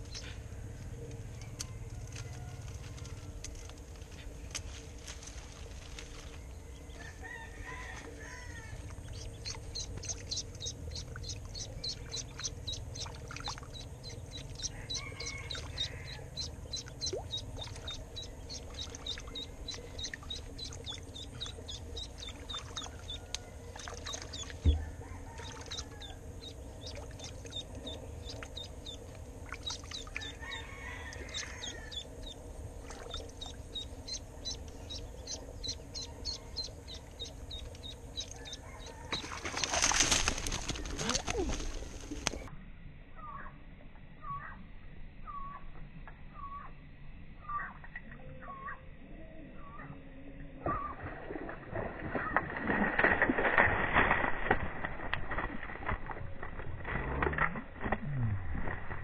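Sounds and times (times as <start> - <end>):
duckling peeping: 0.0 - 0.4, 6.7 - 42.5
low chirps: 8.6 - 39.7.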